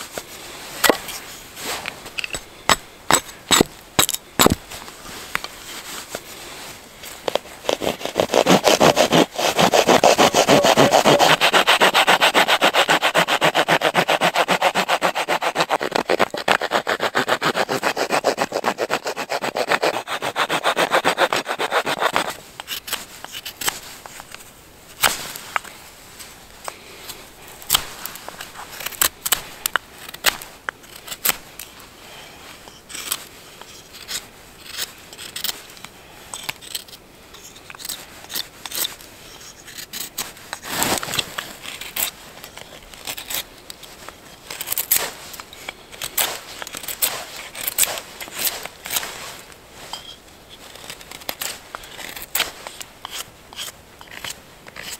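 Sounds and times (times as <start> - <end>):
hand saw cutting wood: 7.3 - 23.7, 46.1 - 49.1
knife whittling wood: 7.3 - 23.8, 46.1 - 49.1.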